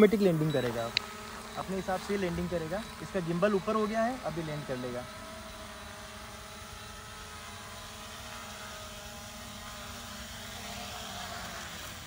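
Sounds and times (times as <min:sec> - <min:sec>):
drone propellers whirring: 0:00.0 - 0:12.0.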